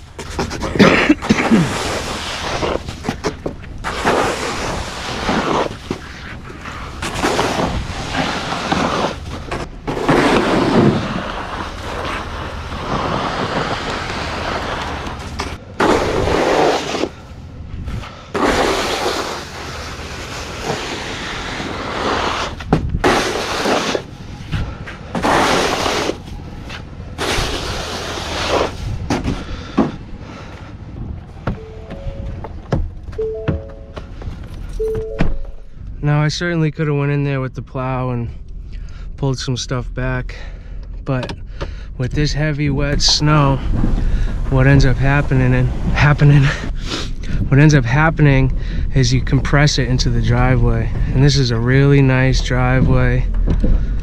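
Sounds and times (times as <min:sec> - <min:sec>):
snow shovel scraping pavement: 0:00.2 - 0:17.2, 0:18.4 - 0:24.1, 0:25.1 - 0:29.1.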